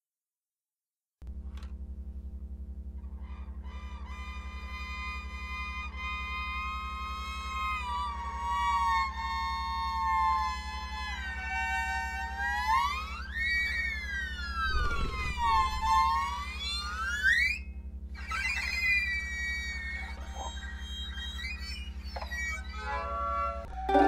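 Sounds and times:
low pulsing drone: 0:03.0 - 0:18.1
siren-like electronic tone sliding: 0:12.5 - 0:17.1.

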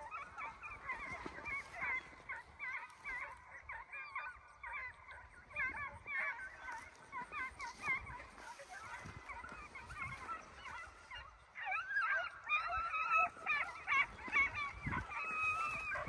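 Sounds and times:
hounds baying: 0:00.0 - 0:16.0.

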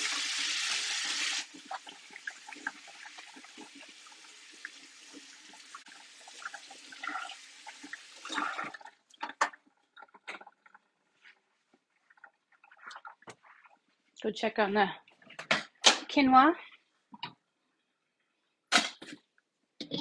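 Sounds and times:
water splashing and dripping: 0:00.0 - 0:11.3.

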